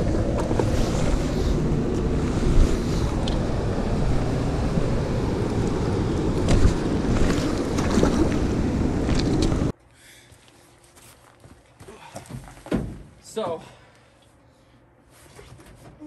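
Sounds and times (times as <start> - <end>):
wind buffeting microphone: 0.0 - 9.7
water at shore: 0.6 - 9.7.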